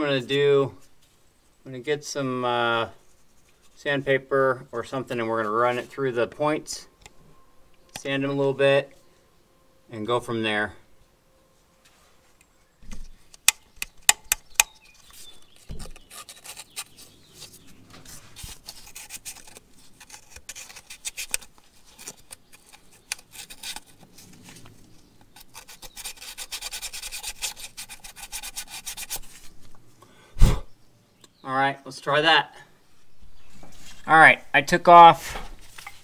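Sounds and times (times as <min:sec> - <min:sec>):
sharp clicks: 0:13.3 - 0:14.8
sandpaper rasping on metal contacts: 0:14.8 - 0:24.0, 0:25.3 - 0:29.5.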